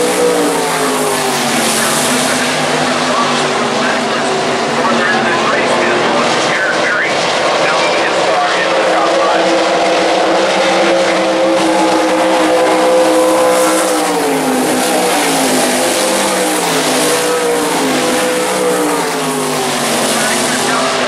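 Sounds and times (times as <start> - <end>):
racing car engines: 0.0 - 21.0.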